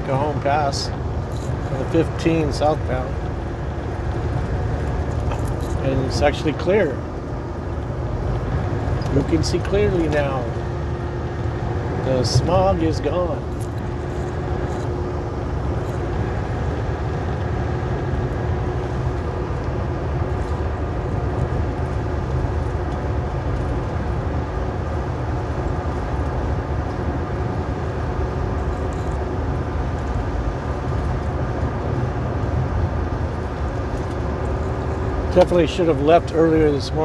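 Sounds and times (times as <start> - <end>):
truck diesel engine drone: 0.0 - 37.0.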